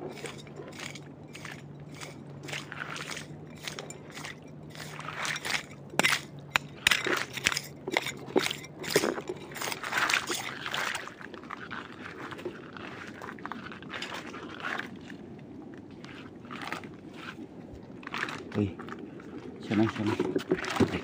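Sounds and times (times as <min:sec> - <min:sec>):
footsteps on wet ground: 0:00.0 - 0:15.2.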